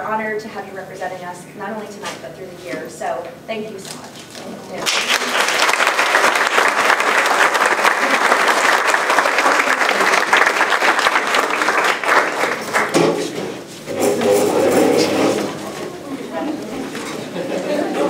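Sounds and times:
audience applauding: 4.8s - 13.4s.

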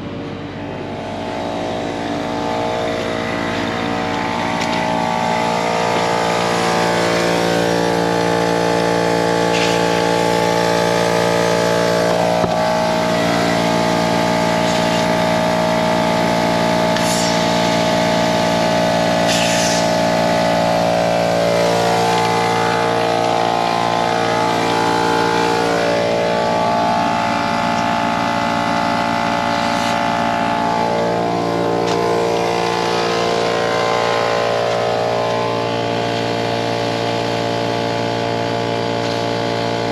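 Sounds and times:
air compressor drone: 0.0s - 39.9s
short air hisses: 17.0s - 17.8s, 19.2s - 20.1s.

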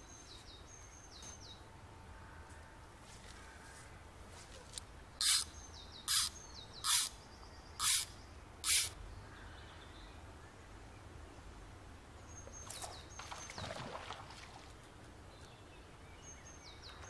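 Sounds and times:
small bird chirping: 5.2s - 9.0s
fly line hissing through guides: 6.1s - 7.1s, 7.8s - 9.0s.

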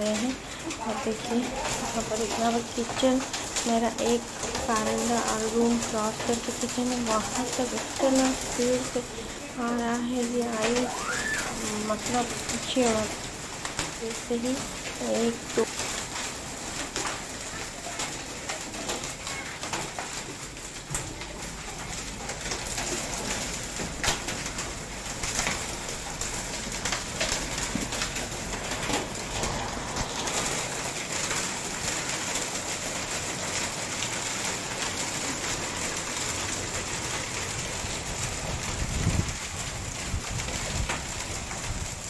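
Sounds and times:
hailstones clicking: 0.0s - 42.0s
heavy rain hissing: 0.0s - 42.0s.

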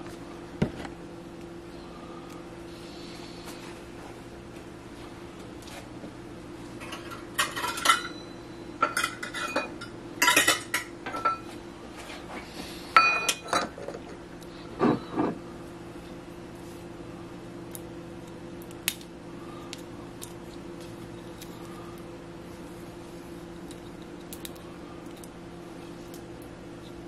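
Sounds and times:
steady low hum: 0.0s - 27.0s
dishes and utensils clinking: 6.8s - 8.2s, 8.8s - 11.4s.

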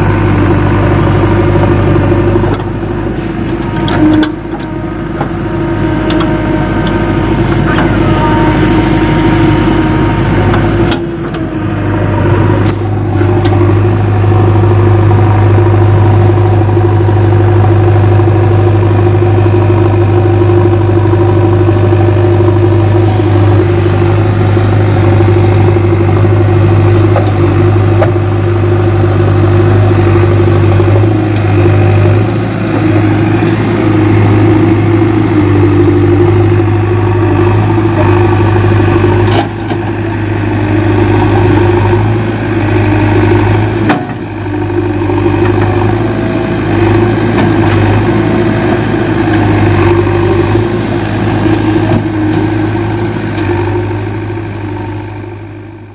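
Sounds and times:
backhoe digging soil: 0.0s - 55.2s
diesel engine running: 0.0s - 55.9s.

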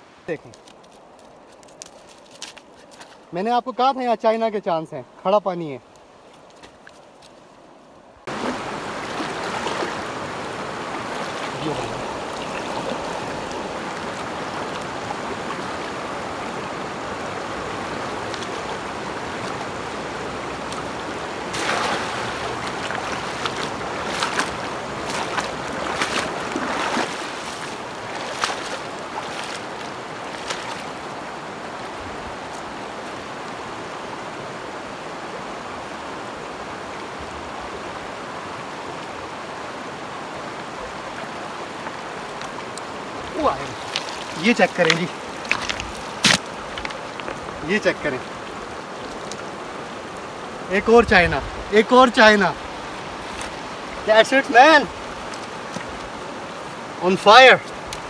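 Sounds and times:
stream rushing over stones: 0.0s - 58.0s
splashing through water: 8.3s - 31.2s, 42.2s - 49.6s, 52.7s - 56.8s.

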